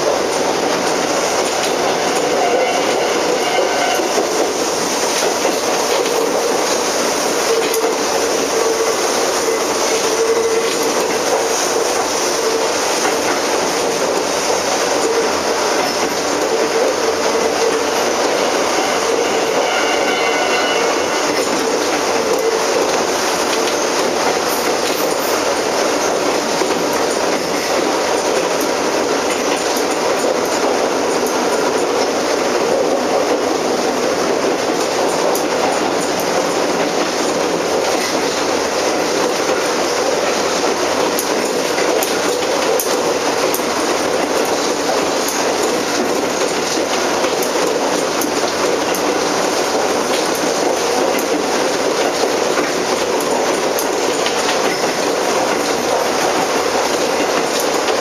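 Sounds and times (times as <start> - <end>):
rail-joint clicks: 0.0 - 58.0
train wheels rumbling on rail: 0.0 - 58.0.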